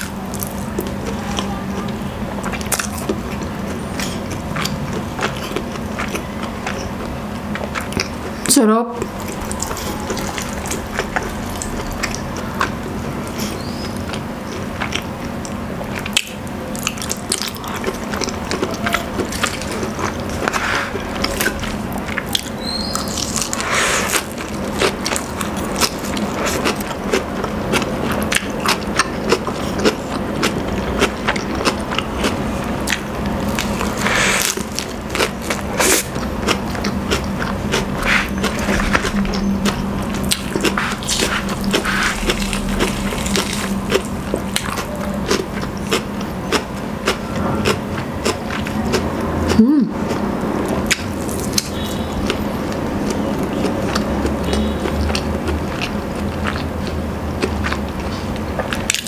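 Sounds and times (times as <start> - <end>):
chewing: 0.0 - 59.0
chicken meat tearing: 37.2 - 46.0.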